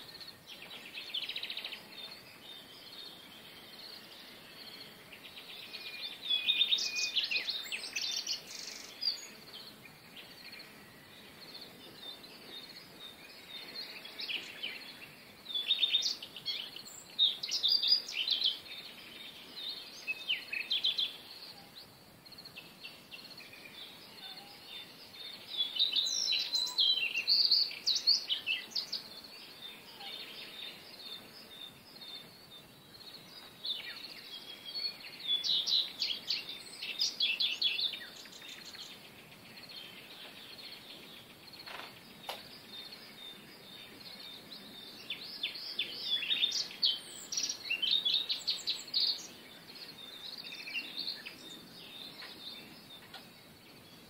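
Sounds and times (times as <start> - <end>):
faint background hiss: 0.0 - 54.0
songbirds chirping: 0.0 - 54.0.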